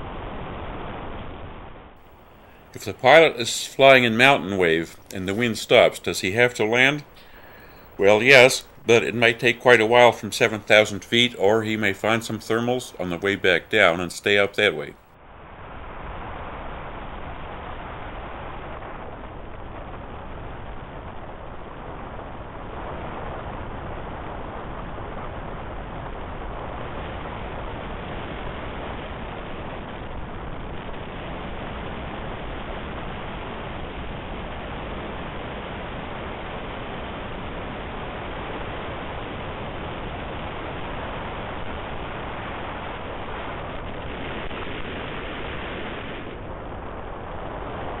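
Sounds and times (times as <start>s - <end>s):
air rushing over glider canopy: 0.0s - 6.0s, 15.2s - 48.0s.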